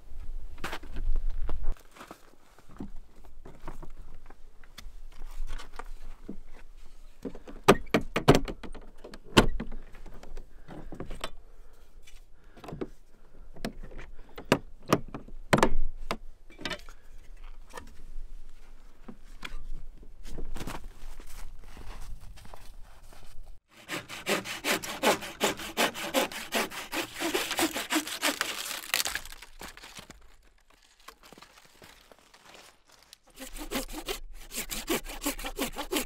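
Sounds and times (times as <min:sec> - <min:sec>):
gear rummaged in case: 0:28.3 - 0:33.4.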